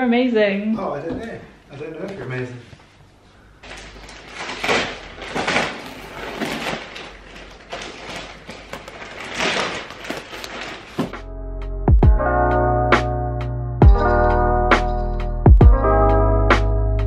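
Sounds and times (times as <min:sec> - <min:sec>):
packaging rustling and scraping: 0:03.6 - 0:11.2
music with steady chords: 0:11.2 - 0:17.0.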